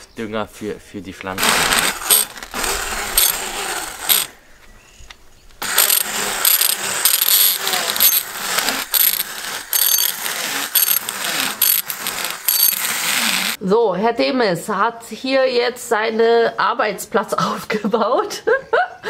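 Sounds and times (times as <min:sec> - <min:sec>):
hand blender crunching eggshells: 0:01.4 - 0:04.3, 0:05.6 - 0:13.6.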